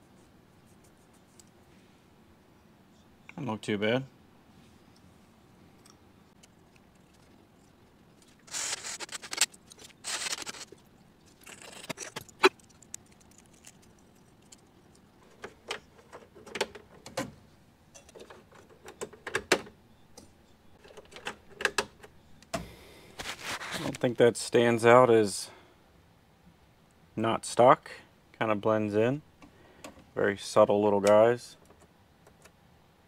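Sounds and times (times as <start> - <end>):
rustling: 6.3 - 16.3, 23.2 - 24.1.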